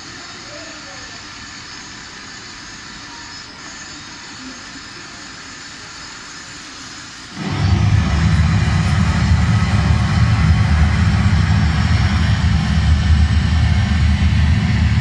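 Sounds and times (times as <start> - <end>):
jet engine rumble over loudspeakers: 0.0 - 15.0
steady background noise: 0.0 - 15.0.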